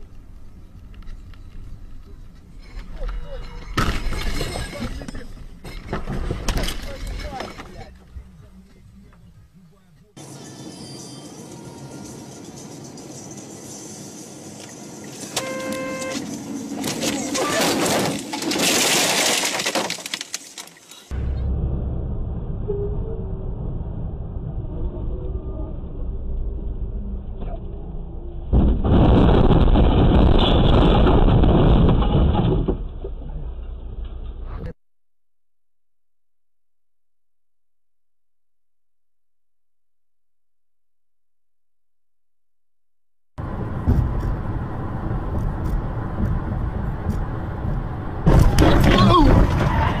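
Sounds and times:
car road and engine rumble: 0:00.0 - 0:34.8, 0:43.4 - 0:50.0
sudden loud noise: 0:21.1 - 0:34.8.

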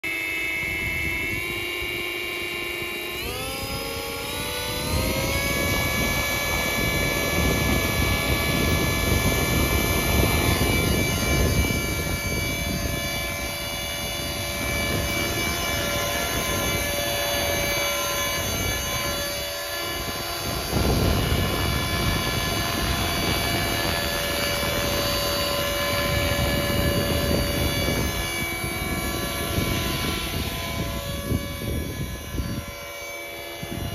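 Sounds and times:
rc helicopter motor whine: 0:00.0 - 0:33.9.

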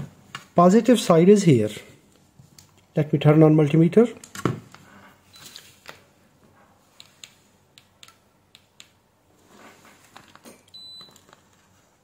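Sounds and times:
multimeter beep: 0:10.7 - 0:11.2.

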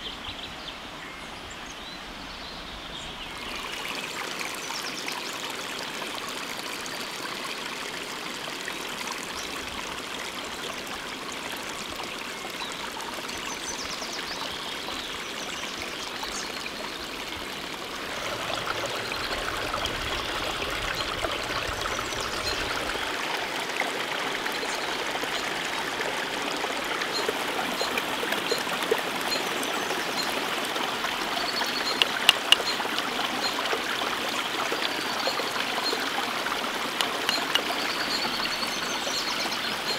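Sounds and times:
stream trickling over rocks: 0:00.0 - 0:39.9
sharp clicks: 0:31.9 - 0:32.7, 0:37.0 - 0:37.8.

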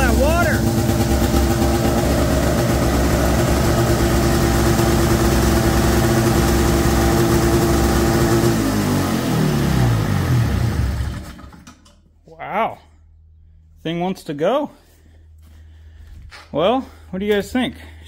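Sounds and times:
snowmobile engine fast idle: 0:00.0 - 0:11.7
engine winding down: 0:00.0 - 0:11.9.

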